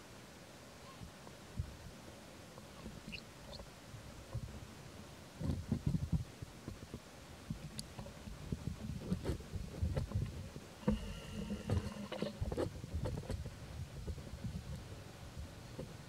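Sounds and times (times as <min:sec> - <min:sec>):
humming tone: 0:10.8 - 0:12.3.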